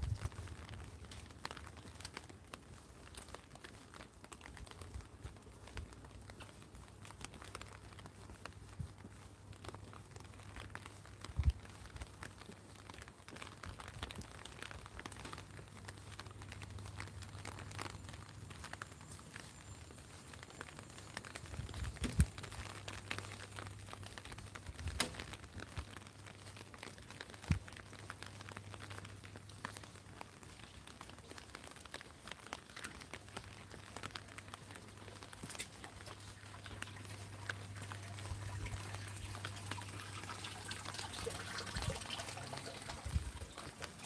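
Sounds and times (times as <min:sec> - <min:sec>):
footsteps on wet pavement: 0:00.0 - 0:44.0
rain pattering on umbrella: 0:00.0 - 0:44.0.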